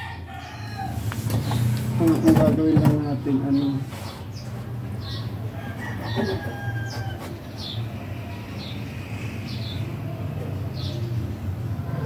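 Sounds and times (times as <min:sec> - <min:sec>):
rooster crowing: 0:00.0 - 0:01.1, 0:05.4 - 0:07.4.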